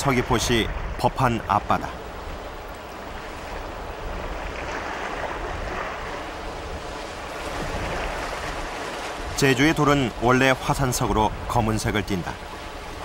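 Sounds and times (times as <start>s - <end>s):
sea waves washing ashore: 0.0s - 13.0s.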